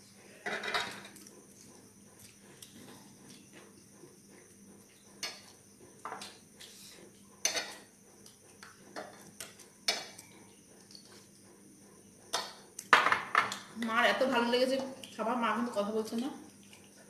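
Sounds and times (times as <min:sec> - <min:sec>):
tableware clinks and scrapes: 0:00.4 - 0:01.1, 0:07.4 - 0:07.9.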